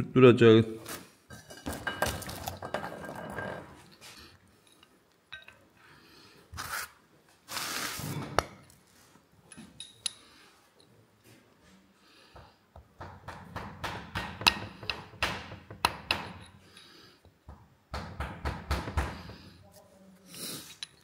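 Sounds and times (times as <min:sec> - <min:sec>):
metal tools clinking and scraping: 0:09.5 - 0:11.0, 0:20.2 - 0:21.0.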